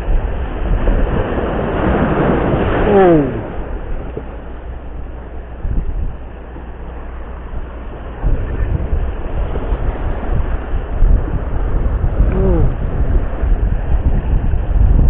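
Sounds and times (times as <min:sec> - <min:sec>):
waves washing over rocks: 0:00.0 - 0:15.0
wind buffeting microphone: 0:00.0 - 0:15.0.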